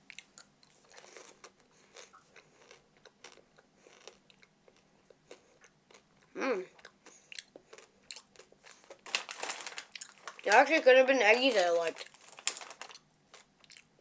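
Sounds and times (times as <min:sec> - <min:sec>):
chewing and crunching candy: 0:00.0 - 0:14.0
person humming: 0:06.4 - 0:06.7.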